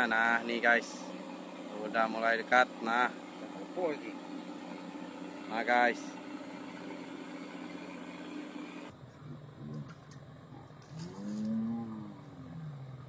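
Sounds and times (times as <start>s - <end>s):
steady low hum: 0.0s - 9.9s.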